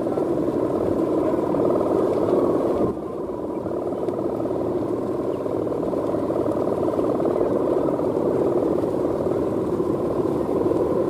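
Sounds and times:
kite hummer droning in wind: 0.0s - 11.0s.

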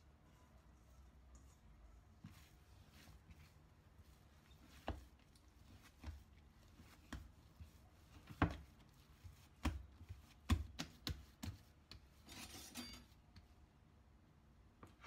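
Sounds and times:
dough knocking on a board: 9.5s - 12.1s.

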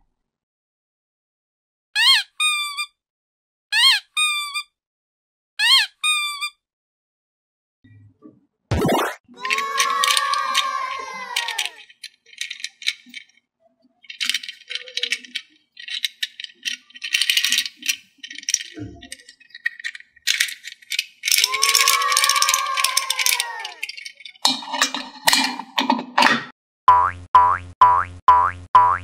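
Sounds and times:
plastic toy rattling and clicking: 9.4s - 26.4s.

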